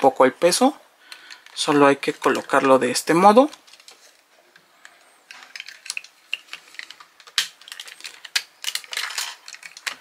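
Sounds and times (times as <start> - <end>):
plastic and metal parts clicking: 5.3 - 10.0.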